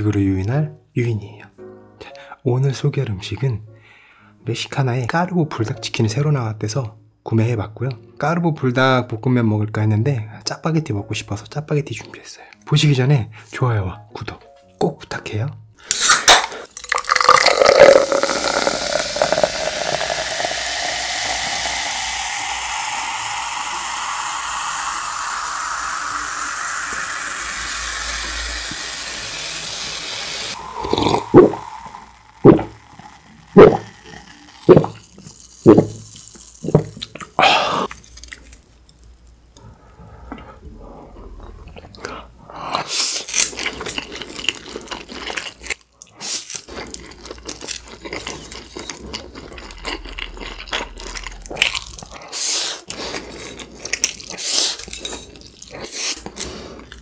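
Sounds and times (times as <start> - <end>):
soda pouring into glass: 15.9 - 39.2, 46.9 - 52.2
loud gulps: 16.8 - 28.0, 30.6 - 35.0, 36.7 - 37.9, 49.0 - 52.4.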